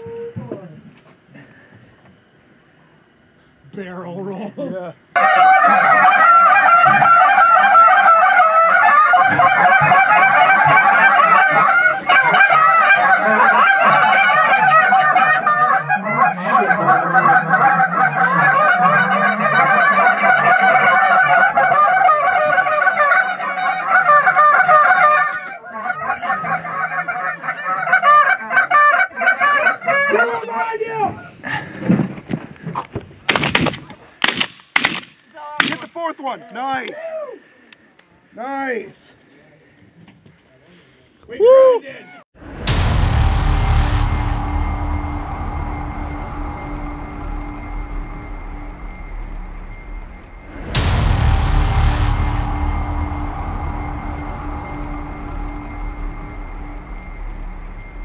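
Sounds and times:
goose honking: 0:05.2 - 0:30.6
shotgun blasts: 0:33.3 - 0:36.0.

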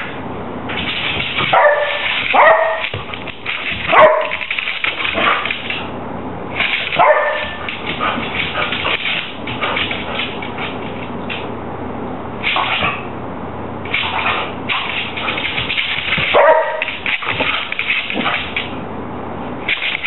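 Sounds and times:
paws clicking on wooden floor: 0:00.7 - 0:06.0, 0:06.6 - 0:11.5, 0:13.9 - 0:18.8
dog barking: 0:01.5 - 0:02.9, 0:03.9 - 0:04.5, 0:07.0 - 0:07.7, 0:16.3 - 0:17.0.

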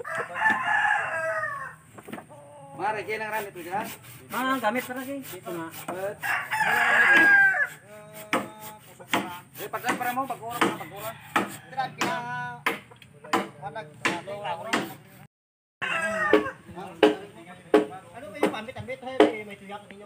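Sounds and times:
rooster crowing: 0:00.0 - 0:01.8, 0:06.2 - 0:07.8, 0:10.4 - 0:12.3, 0:15.8 - 0:16.7
chickens clucking: 0:00.0 - 0:03.5
bamboo being chopped: 0:08.1 - 0:15.0, 0:16.2 - 0:19.5.

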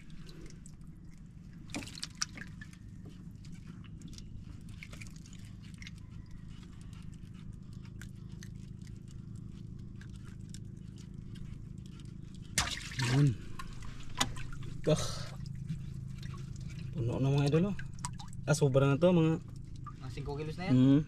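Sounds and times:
water drips: 0:00.0 - 0:06.6, 0:07.8 - 0:20.5
steady low hum: 0:00.0 - 0:21.0.

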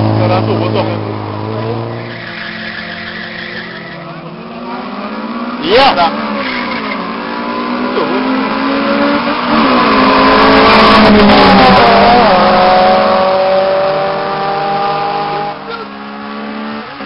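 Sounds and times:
racing car engines accelerating past: 0:04.1 - 0:17.0.

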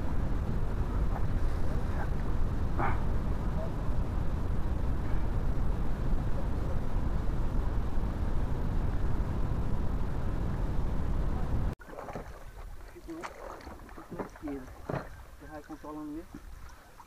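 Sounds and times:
loud low rushing noise: 0:00.0 - 0:11.8.

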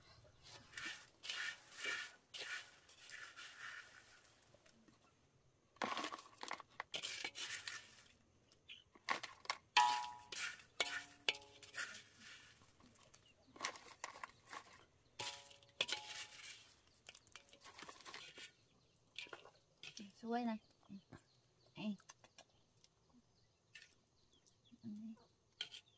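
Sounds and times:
chopsticks scraping a wok: 0:00.4 - 0:04.6, 0:05.8 - 0:08.2, 0:09.0 - 0:20.2, 0:25.6 - 0:25.9.

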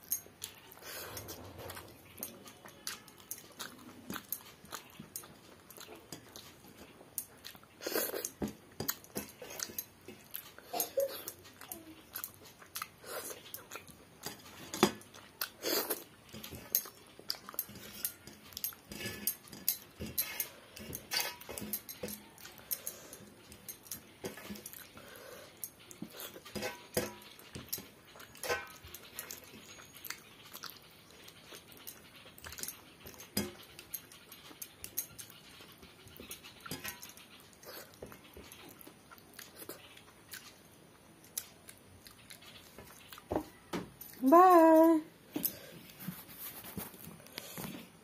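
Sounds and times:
wet chewing and mouth smacks: 0:00.2 - 0:20.2, 0:20.9 - 0:44.2.

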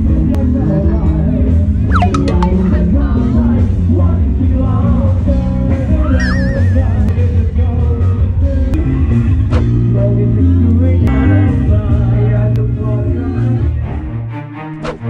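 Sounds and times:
background music with bass line: 0:00.0 - 0:15.0
short warbling tone: 0:01.9 - 0:02.8, 0:05.9 - 0:07.3.

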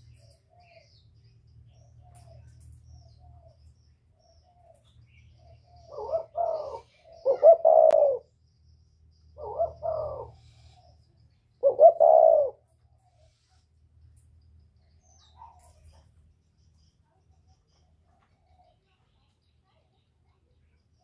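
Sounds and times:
dove cooing: 0:04.4 - 0:08.4, 0:09.4 - 0:13.5.

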